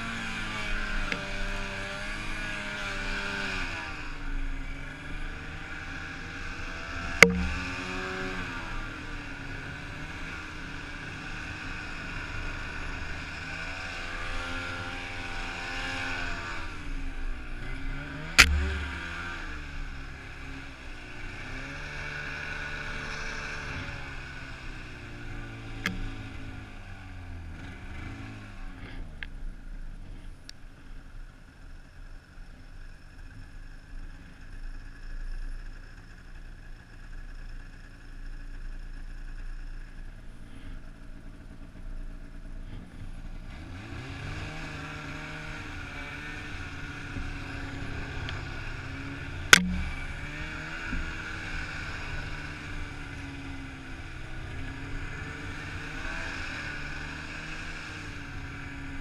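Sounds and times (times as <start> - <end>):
snowmobile engine revving: 0.0 - 29.1, 40.4 - 59.0
sharp knock: 7.2 - 7.7, 18.4 - 19.3, 49.5 - 50.1.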